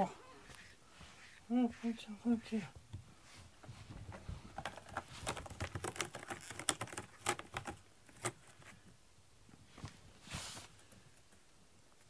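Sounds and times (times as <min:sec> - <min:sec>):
cat scratching cardboard: 0:04.6 - 0:08.8.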